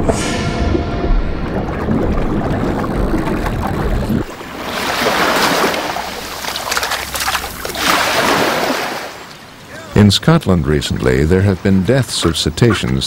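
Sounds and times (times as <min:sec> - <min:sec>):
low rumble: 0:00.0 - 0:07.9
water splashing in surf: 0:01.5 - 0:09.6.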